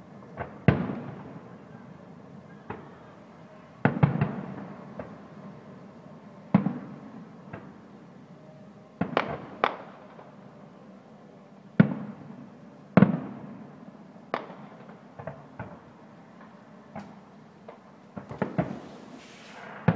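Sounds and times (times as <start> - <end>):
fireworks bursting: 17.0 - 19.9.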